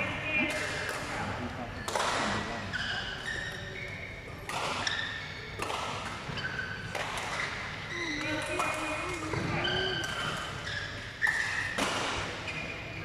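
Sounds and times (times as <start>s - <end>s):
rackets striking shuttlecocks: 0.4s - 1.2s, 4.4s - 12.4s
shoes squeaking on court: 2.6s - 13.0s.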